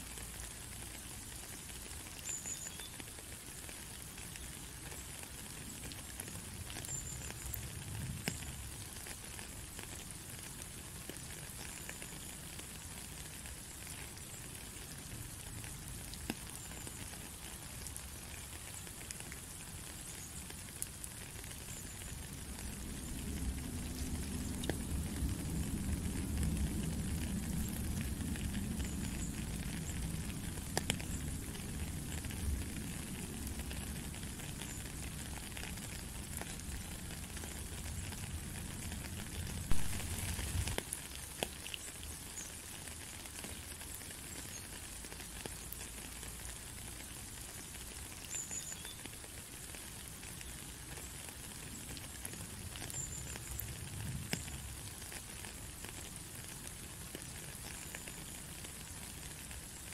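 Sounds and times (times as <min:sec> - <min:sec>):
steady rain hiss: 0:00.0 - 0:59.9
low rumble: 0:39.7 - 0:40.8.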